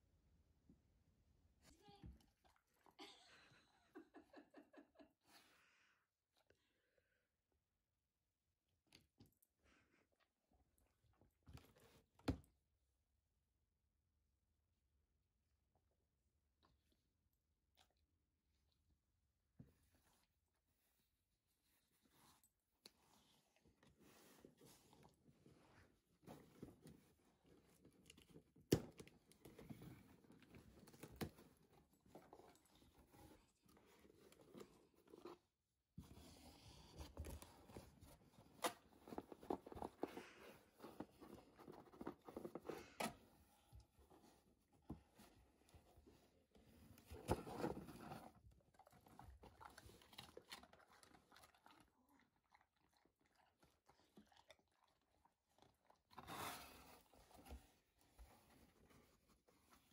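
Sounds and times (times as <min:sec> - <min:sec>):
cardboard box rustling and scraping: 0:47.1 - 0:48.4.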